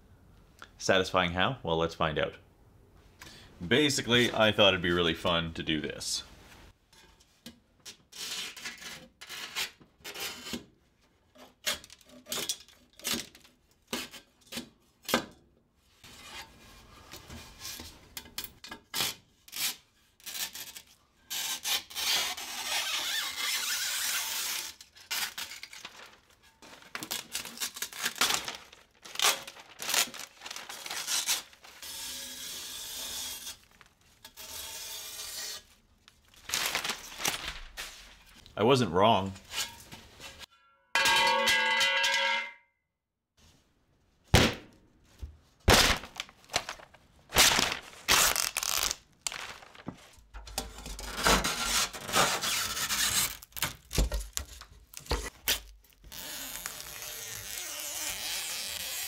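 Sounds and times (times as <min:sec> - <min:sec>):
mesh tearing: 0:21.7 - 0:34.3, 0:36.2 - 0:38.2, 0:45.7 - 0:50.1, 0:52.2 - 0:59.0.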